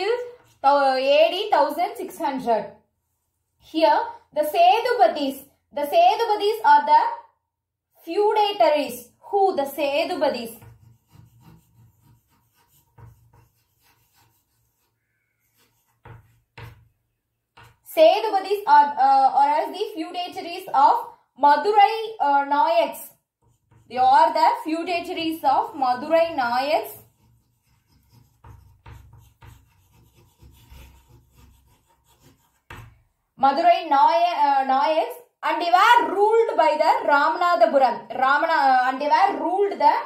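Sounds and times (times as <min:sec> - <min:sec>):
chalk scratching on blackboard: 0:00.0 - 0:00.8, 0:10.0 - 0:18.0, 0:23.2 - 0:33.0
knocks on blackboard: 0:16.0 - 0:16.9.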